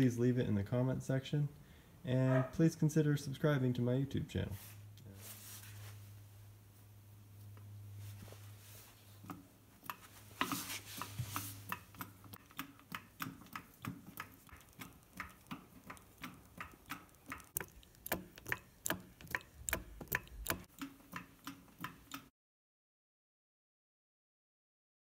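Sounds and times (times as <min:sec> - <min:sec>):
hand hydraulic pump clicking: 0:09.3 - 0:22.3.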